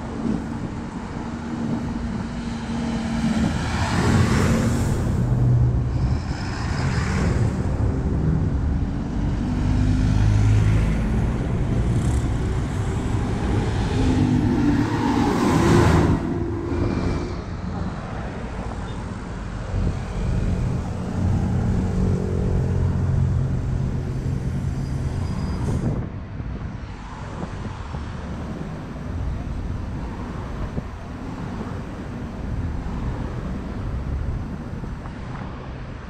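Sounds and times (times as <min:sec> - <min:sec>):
bus engine humming: 0:00.0 - 0:26.1
street traffic rumbling: 0:00.0 - 0:36.0.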